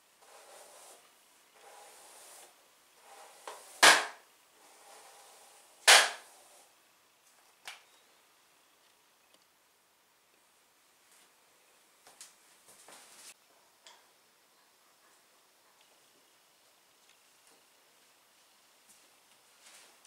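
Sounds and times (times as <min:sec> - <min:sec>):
loud sharp bangs: 0:05.9 - 0:06.2.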